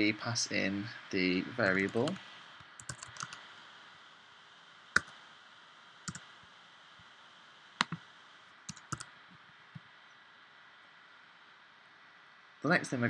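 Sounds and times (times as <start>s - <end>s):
faint steady hiss: 0.0s - 13.0s
computer key presses: 2.8s - 3.4s, 7.8s - 8.0s, 8.7s - 9.1s.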